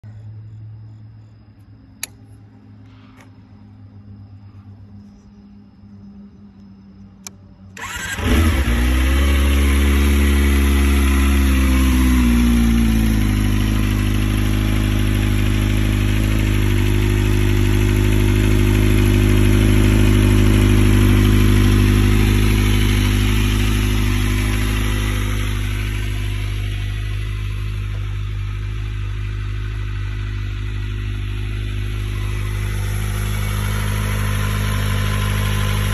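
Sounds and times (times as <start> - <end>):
short clicks: 2.0 - 2.4
motorcycle engine starting and idling: 7.2 - 35.9.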